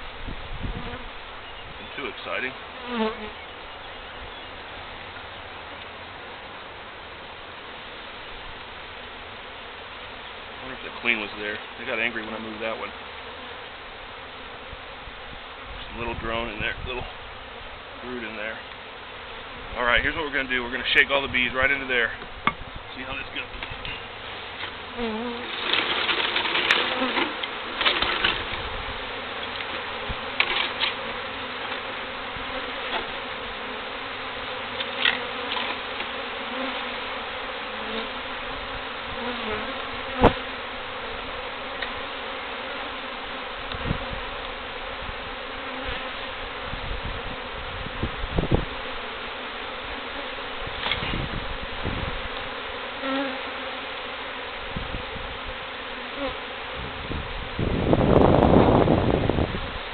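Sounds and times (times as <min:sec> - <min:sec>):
bees buzzing: 0:00.0 - 0:59.9
rustling and knocks: 0:25.4 - 0:28.7, 0:29.4 - 0:31.1.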